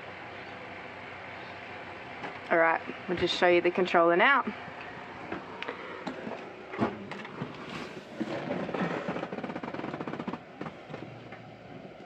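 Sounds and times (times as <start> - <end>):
rattling rustle: 6.2 - 11.2.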